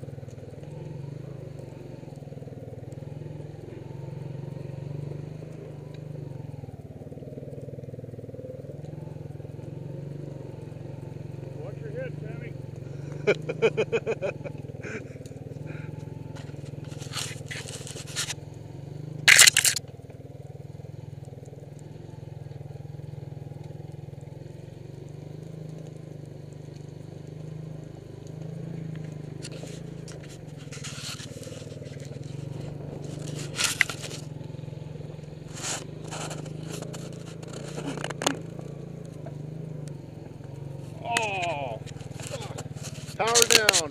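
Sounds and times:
small engine running: 0.0s - 43.9s
brush and twigs scraping: 15.4s - 18.5s, 19.2s - 19.8s, 28.4s - 43.9s.

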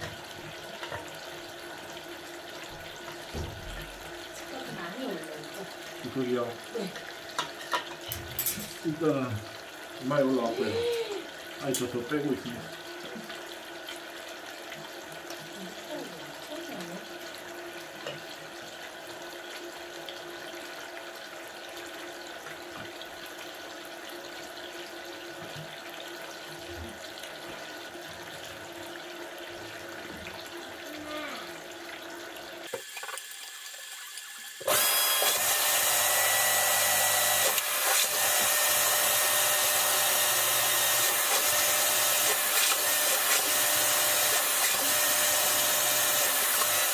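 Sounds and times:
water trickling: 0.0s - 34.7s.

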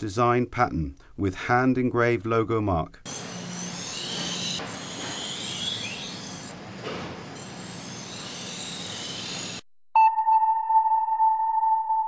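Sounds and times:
knife on grinding wheel: 3.1s - 9.6s.

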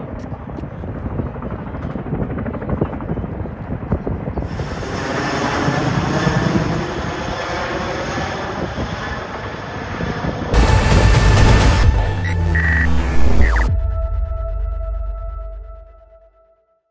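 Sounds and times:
helicopter rotor rumble: 0.0s - 13.7s
turbine whine: 4.4s - 13.9s.

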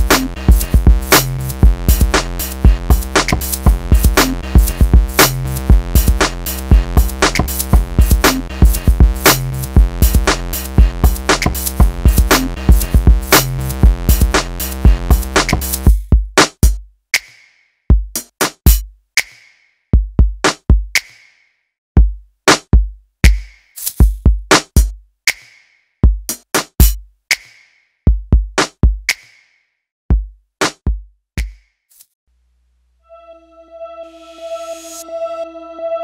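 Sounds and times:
electronic music: 0.0s - 9.7s, 33.1s - 36.0s
kick drums and snare hits: 0.0s - 16.8s, 17.9s - 18.9s, 22.0s - 25.0s, 26.0s - 27.0s, 28.1s - 29.2s, 30.1s - 31.6s.

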